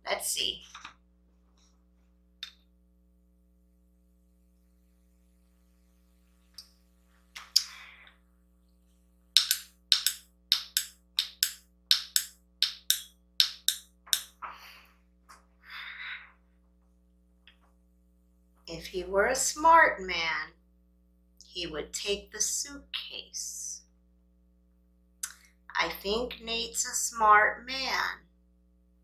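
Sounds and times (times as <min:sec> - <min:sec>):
faint steady hum: 0:00.0 - 0:29.0
sharp taps: 0:09.4 - 0:14.4.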